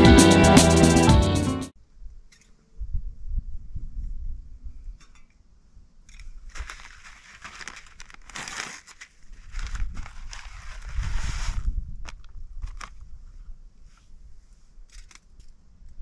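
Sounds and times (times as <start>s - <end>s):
packaging crinkling: 6.5s - 13.0s.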